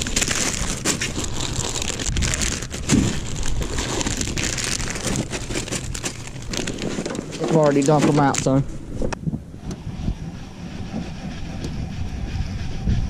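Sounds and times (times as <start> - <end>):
plastic packages crinkling: 0.0 - 8.6.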